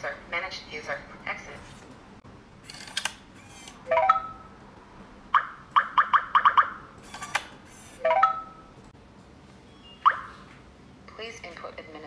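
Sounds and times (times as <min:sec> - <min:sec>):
keypad beeps: 0:08.1 - 0:08.7.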